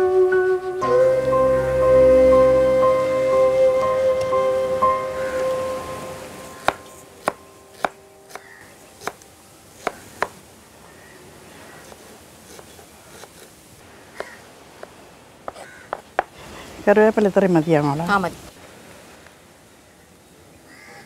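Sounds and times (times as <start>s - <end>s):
background music: 0.0s - 9.6s
knife chopping on cutting board: 6.6s - 9.2s.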